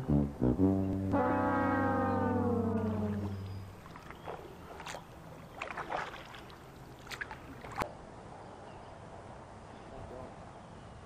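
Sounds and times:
paddle splashing in water: 2.8s - 7.9s.

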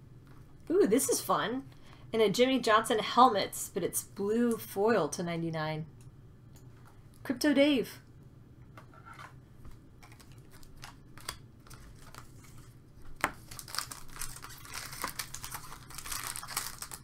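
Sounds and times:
card pack wrapper crinkling: 10.0s - 17.0s.

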